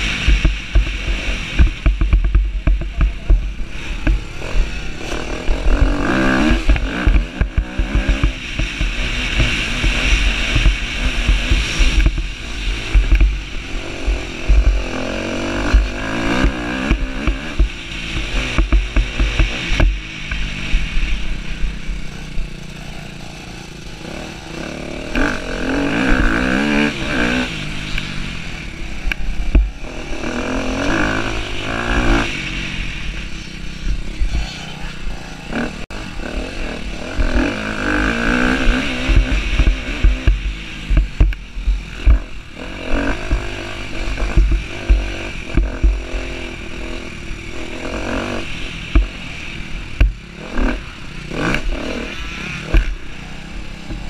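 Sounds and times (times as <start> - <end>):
wind on microphone: 0.0 - 23.1, 23.8 - 54.0
motocross bike engine revving: 0.0 - 54.0
thuds from bumps: 44.2 - 46.1.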